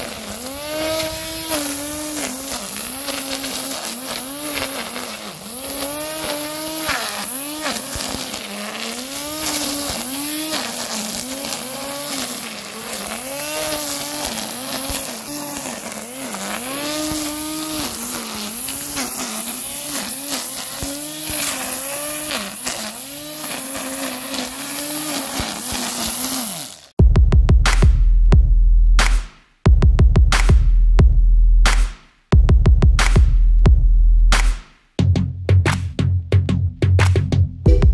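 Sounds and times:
electric grass trimmer whining: 0.0s - 27.0s
electronic music with heavy beat: 27.0s - 37.9s.

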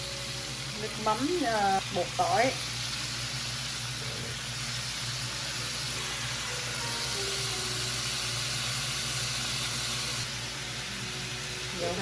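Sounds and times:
sauce sizzling in a pan: 0.0s - 12.0s.

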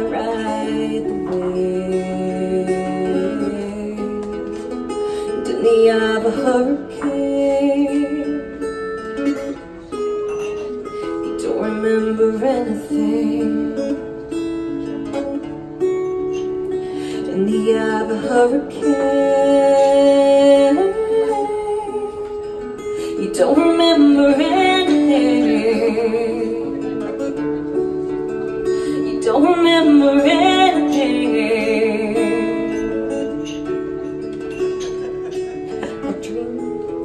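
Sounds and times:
woman singing: 0.0s - 9.6s, 11.2s - 15.0s, 16.2s - 37.0s
acoustic guitar: 0.0s - 37.0s.

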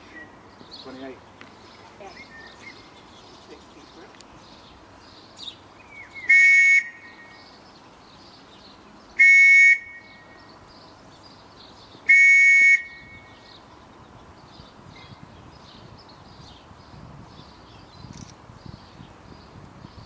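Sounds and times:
shrill whistle blasts: 6.3s - 7.1s, 9.2s - 10.1s, 12.1s - 13.2s.

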